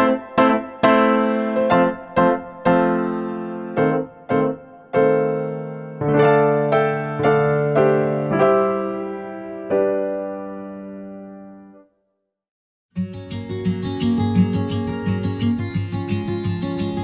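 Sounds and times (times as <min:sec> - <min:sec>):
slow electric piano music: 0:00.0 - 0:12.0.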